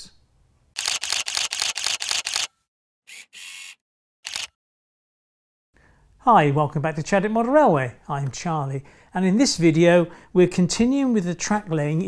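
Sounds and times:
camera shutter clicks: 0.8 - 2.5, 3.1 - 4.6.

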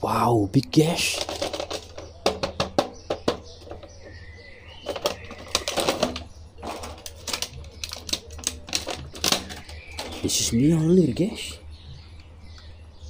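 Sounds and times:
plastic crinkling: 4.8 - 10.2
sharp plastic clicks: 4.8 - 10.2.

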